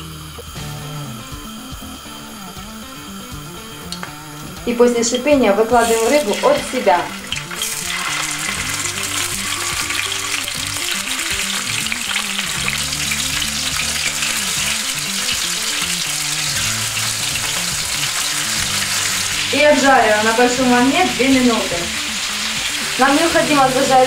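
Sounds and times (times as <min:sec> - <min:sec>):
fish sizzling in hot oil: 0:00.0 - 0:24.0.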